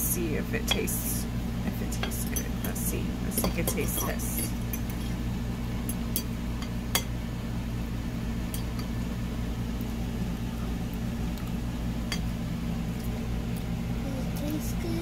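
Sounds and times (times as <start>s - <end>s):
low room hum: 0.0s - 15.0s
fork clinking against a plate: 2.0s - 5.2s.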